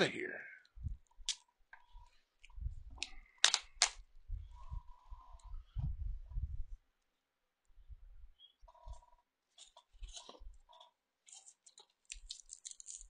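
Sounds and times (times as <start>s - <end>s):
plastic bag crinkling: 11.2s - 13.0s.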